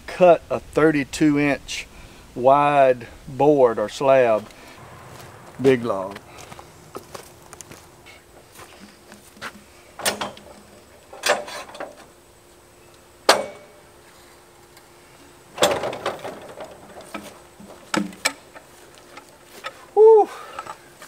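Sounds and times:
rattling scrape: 0:06.2 - 0:12.1
metal and wood knocks: 0:13.3 - 0:13.8, 0:15.6 - 0:18.6.

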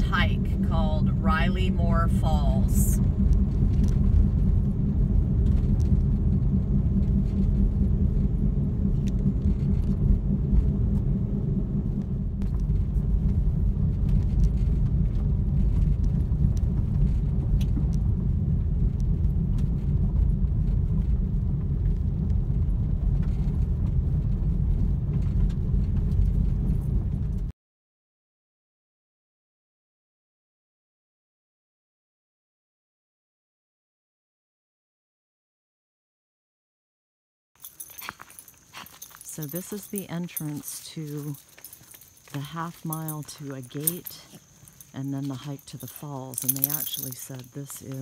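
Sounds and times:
vehicle engine and tyres rumbling: 0:00.0 - 0:27.5, 0:37.6 - 0:48.0
small clicks and rattles: 0:37.6 - 0:48.0.

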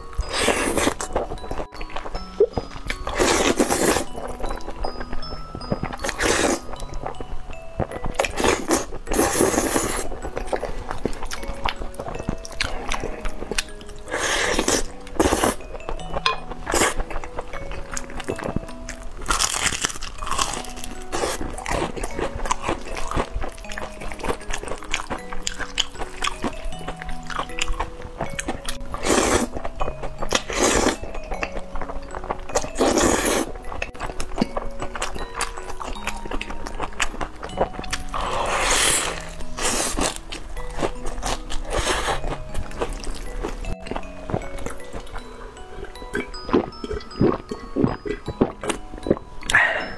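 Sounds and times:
chewing: 0:00.0 - 0:49.9
light background music: 0:00.0 - 0:49.9
person slurping noodles: 0:00.3 - 0:01.1, 0:03.0 - 0:04.1, 0:06.0 - 0:06.8, 0:08.3 - 0:10.1, 0:14.1 - 0:15.6, 0:29.0 - 0:29.6, 0:32.8 - 0:33.6, 0:38.1 - 0:40.2.

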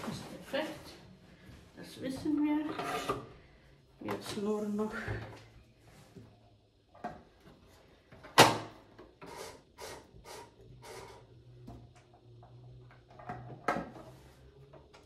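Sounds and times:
faint low motor hum: 0:00.0 - 0:15.0.

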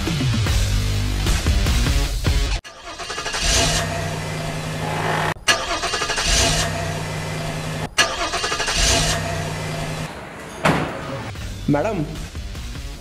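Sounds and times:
car engine cranking and starting: 0:02.6 - 0:11.4
car engine running: 0:03.0 - 0:10.6.

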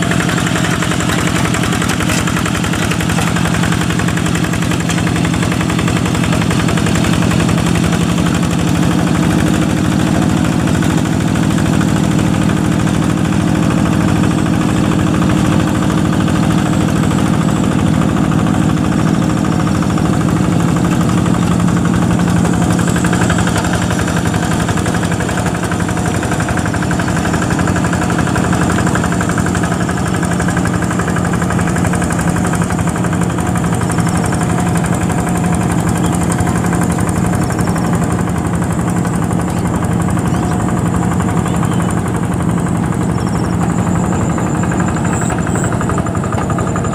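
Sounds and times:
diesel engine chugging: 0:00.0 - 0:46.9.

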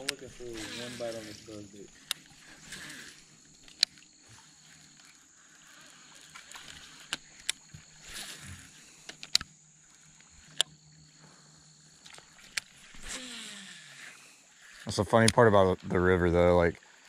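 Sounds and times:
fishing reel clicks: 0:00.0 - 0:04.1, 0:04.7 - 0:10.8, 0:12.2 - 0:15.5.

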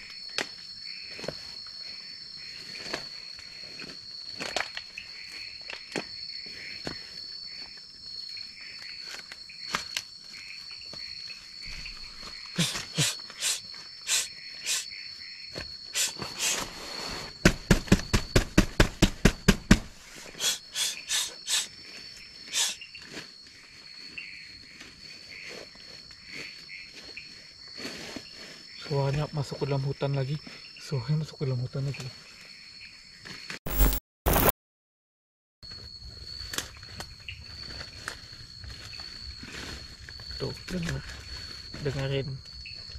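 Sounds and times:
night insects droning: 0:00.0 - 0:34.5, 0:35.6 - 0:42.9
sharp knocks: 0:17.4 - 0:19.9.

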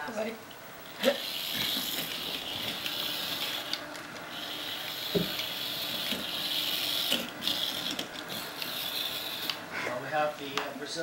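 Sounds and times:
toy car motor whining: 0:01.0 - 0:09.6.

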